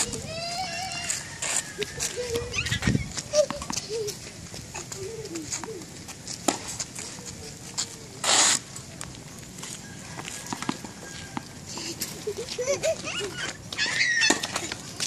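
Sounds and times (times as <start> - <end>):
loud scraping rustle: 0.0 - 3.3, 5.5 - 12.4
faint low cooing calls: 0.0 - 6.0
tennis balls and rackets tapping: 3.2 - 9.2, 10.4 - 15.0.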